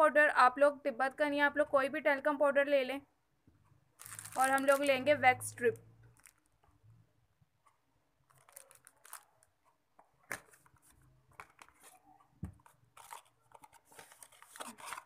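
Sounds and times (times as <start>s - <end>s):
plastic rustling and clicking: 6.0s - 6.8s, 8.2s - 15.0s.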